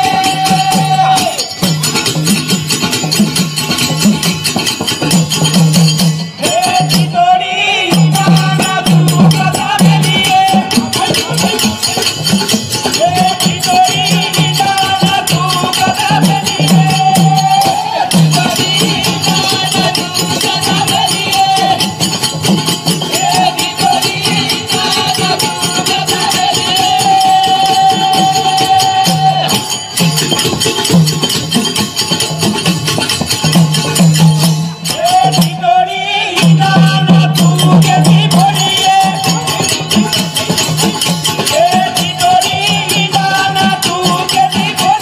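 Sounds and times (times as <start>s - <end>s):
small hand cymbals jingling: 0.0s - 35.6s, 36.4s - 45.0s
frame drums beating: 0.0s - 45.0s.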